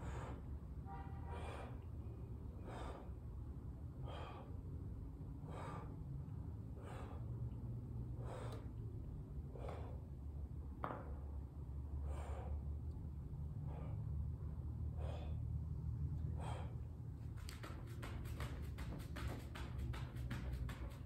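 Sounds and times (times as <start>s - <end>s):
man breathing: 0.0s - 10.4s, 11.8s - 18.2s
steady low hum: 0.0s - 21.0s.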